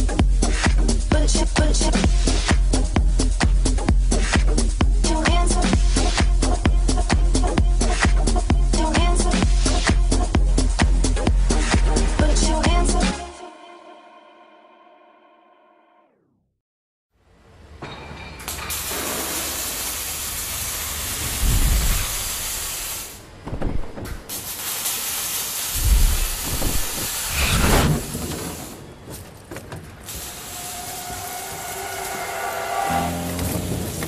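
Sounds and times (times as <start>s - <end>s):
race car engine roaring: 31.0s - 34.0s.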